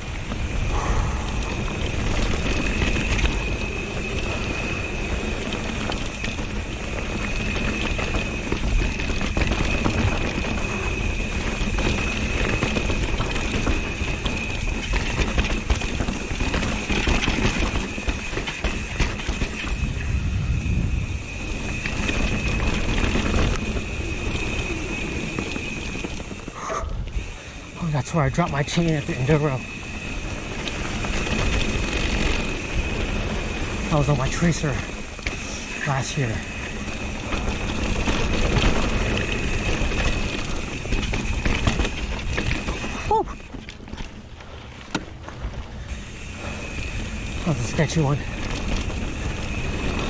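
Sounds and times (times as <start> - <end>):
high-pitched whine: 0.0 - 12.8, 19.2 - 41.6
wind rushing over microphone: 0.0 - 43.5
bike tyres rattling over dirt: 0.0 - 50.0.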